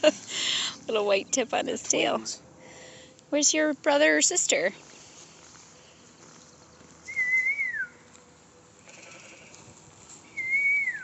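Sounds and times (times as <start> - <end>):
person whistling calls: 7.0 - 8.0, 10.3 - 11.0.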